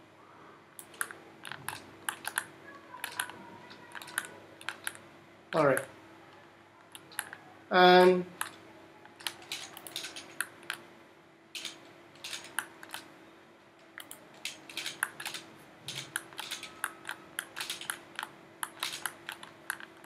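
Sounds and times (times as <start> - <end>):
faint steady hum: 0.0 - 20.0
keyboard and mouse clicking: 0.8 - 5.0, 6.8 - 7.5, 8.4 - 10.9, 11.6 - 13.1, 13.8 - 20.0.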